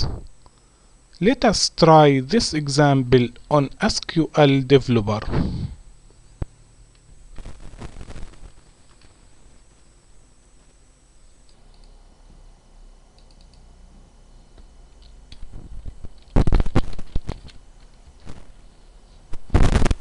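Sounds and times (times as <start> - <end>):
computer keyboard typing: 13.2 - 13.6.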